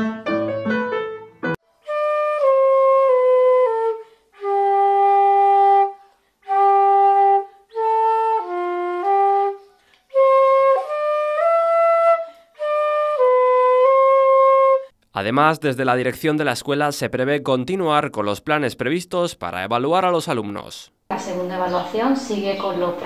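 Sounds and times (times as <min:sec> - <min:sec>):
flute playing slow melody: 0:01.7 - 0:14.9.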